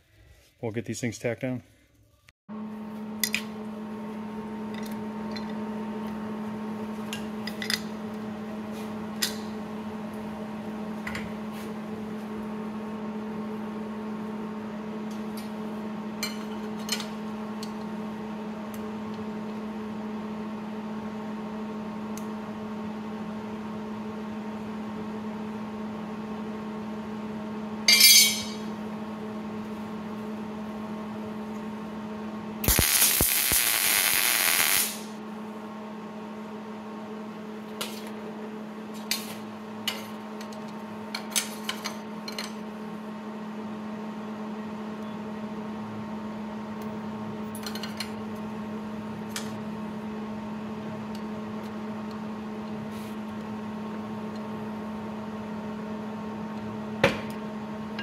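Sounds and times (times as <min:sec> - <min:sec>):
welding arc bursts: 0:32.6 - 0:35.2.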